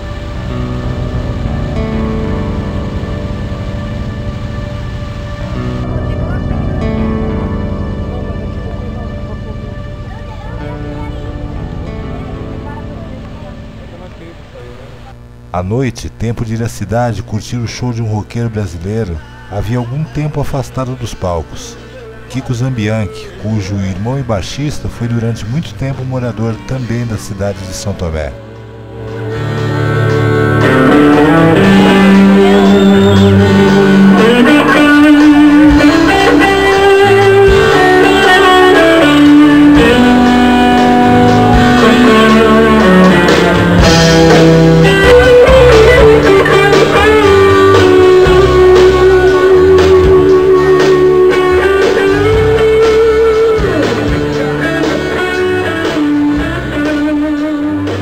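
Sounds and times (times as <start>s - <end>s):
rock band playing live: 0.0s - 14.5s, 28.4s - 58.0s
electric guitar: 0.0s - 15.6s, 18.0s - 58.0s
bass line: 0.0s - 58.0s.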